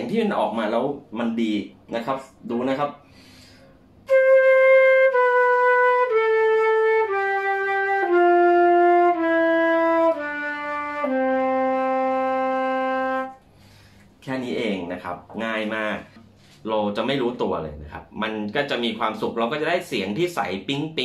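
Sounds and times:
flute playing descending scale: 4.1s - 13.4s.

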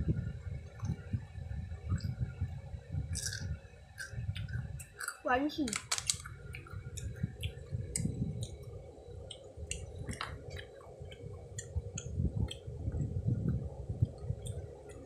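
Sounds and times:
close chewing with wet smacks: 6.0s - 15.0s.

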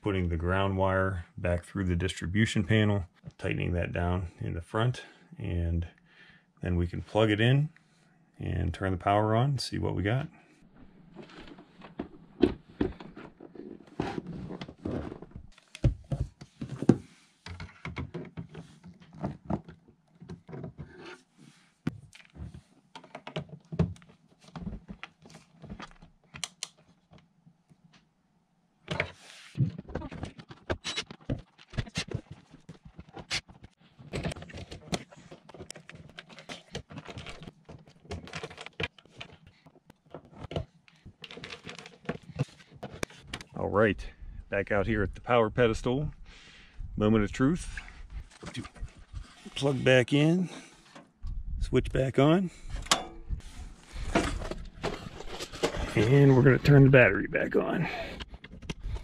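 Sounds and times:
cables and connectors clicking: 26.3s - 27.3s.

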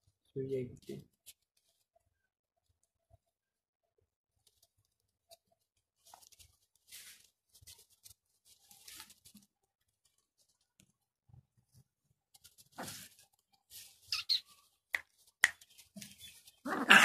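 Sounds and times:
dry straw rustling: 6.0s - 10.6s, 12.4s - 17.0s.

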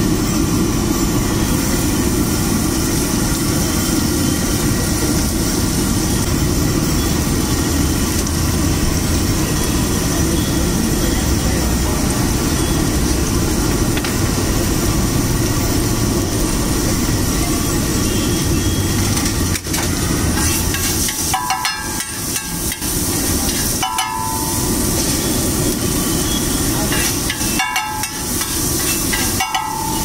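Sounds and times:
food sizzling in oil: 0.0s - 30.0s
metal spatula scraping griddle: 19.2s - 25.4s, 26.8s - 30.0s.

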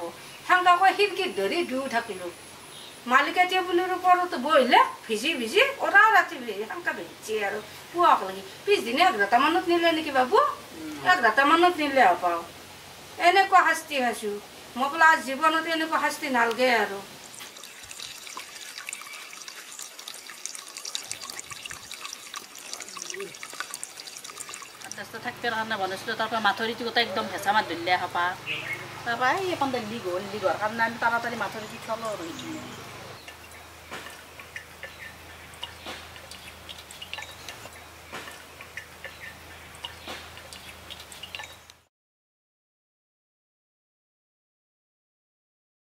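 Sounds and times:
water trickling and dripping: 15.9s - 27.6s, 29.3s - 41.9s.

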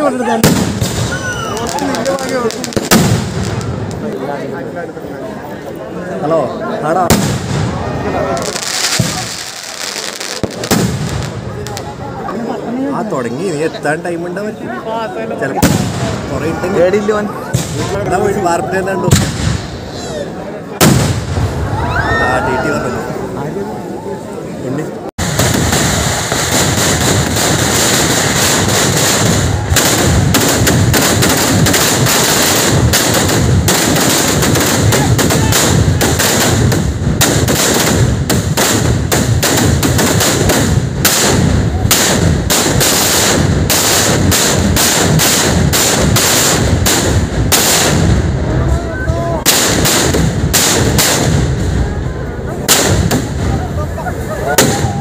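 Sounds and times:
firecracker bangs and crackles: 0.0s - 4.2s, 6.9s - 12.3s, 15.5s - 16.8s, 17.4s - 18.4s, 19.0s - 20.1s, 20.8s - 21.8s, 25.2s - 48.6s, 49.3s - 55.0s.

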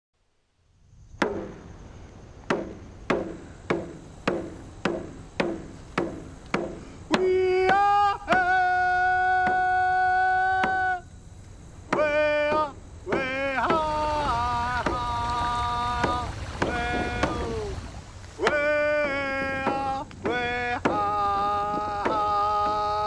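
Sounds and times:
hand drum beat: 2.5s - 11.0s, 11.9s - 23.0s
man singing: 7.1s - 11.2s, 11.9s - 23.0s.

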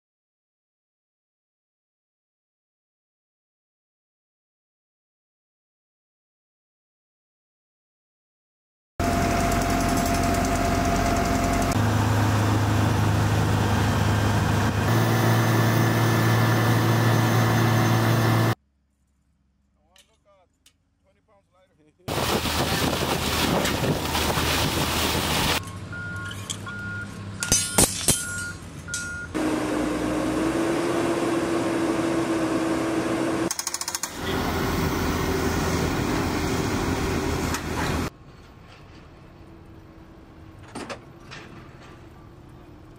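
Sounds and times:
crane engine running: 9.0s - 18.6s, 22.1s - 42.9s
reversing alarm beeping: 25.6s - 29.4s.

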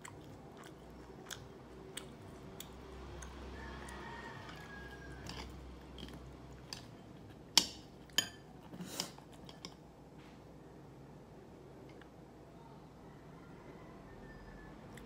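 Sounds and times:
crunching fried chicken: 0.0s - 7.4s.

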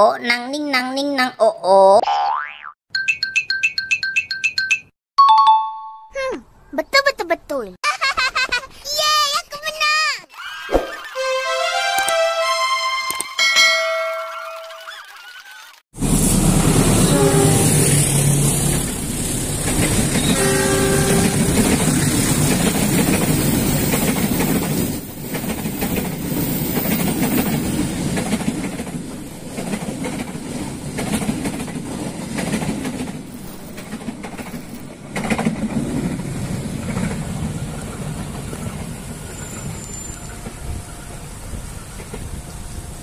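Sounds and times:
train horn blast: 11.2s - 13.2s, 16.8s - 18.1s, 20.2s - 21.8s
diesel locomotive rumble: 16.0s - 29.5s
train wheels clattering over rail joints: 21.3s - 38.9s.

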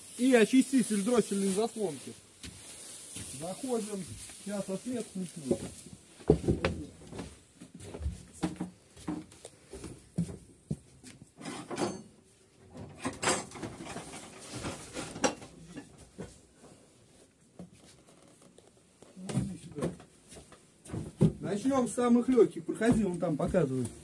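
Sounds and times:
footsteps on wooden floorboards: 2.4s - 3.4s, 5.4s - 11.2s, 19.0s - 21.5s, 22.8s - 24.0s
knocks and thumps: 5.4s - 10.9s, 20.8s - 21.6s, 22.8s - 23.8s.

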